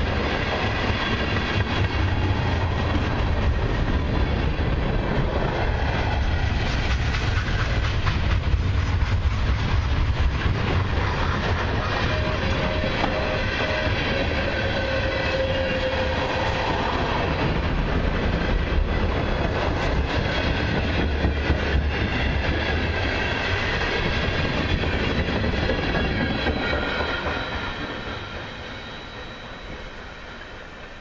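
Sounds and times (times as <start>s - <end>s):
freight train rumble: 0.0s - 31.0s
train wheels clacking over rails: 0.0s - 31.0s
faint high wheel squeal: 25.8s - 31.0s.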